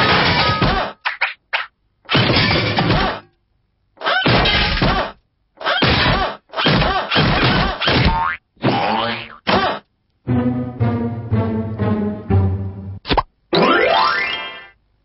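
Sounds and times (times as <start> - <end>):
cartoon song: 13.5 - 14.8.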